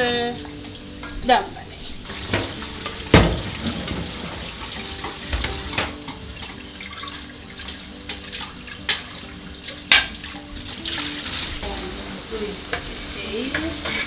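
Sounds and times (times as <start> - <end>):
water pouring into sink: 0.3 - 11.8
pots knocking against sink: 2.1 - 11.0.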